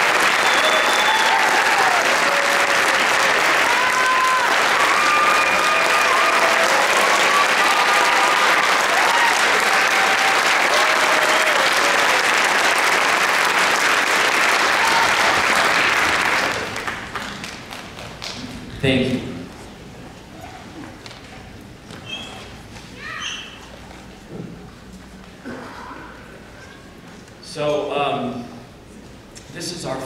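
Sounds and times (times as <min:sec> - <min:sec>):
short cheers: 0:00.0 - 0:12.3, 0:14.6 - 0:15.8
audience applauding: 0:00.0 - 0:18.6.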